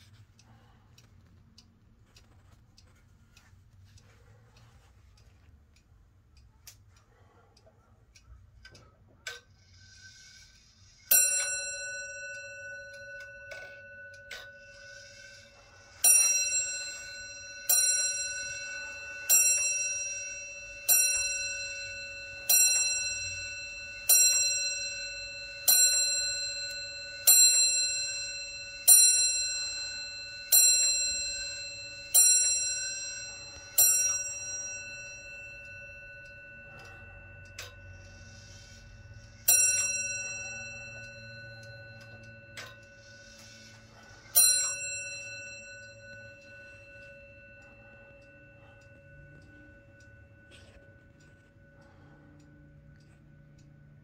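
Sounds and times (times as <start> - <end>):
clock bell striking: 11.1 - 54.0.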